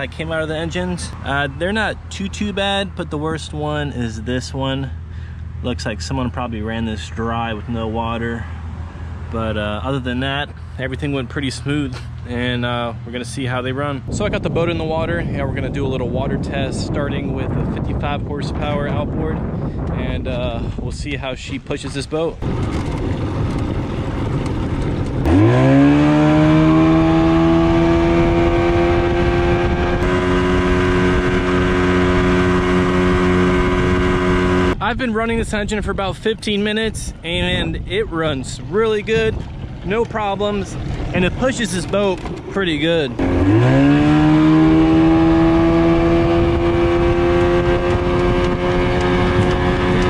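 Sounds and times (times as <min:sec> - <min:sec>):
outboard engine under load: 0:21.8 - 0:34.8, 0:37.2 - 0:50.0.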